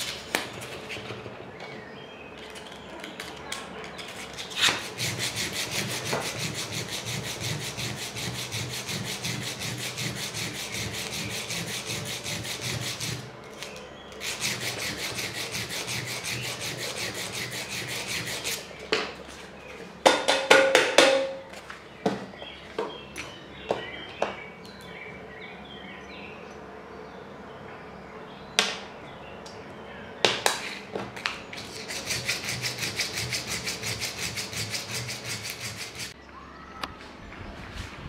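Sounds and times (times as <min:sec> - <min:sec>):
metal scratching on sandpaper: 0:03.9 - 0:18.7, 0:31.6 - 0:36.2.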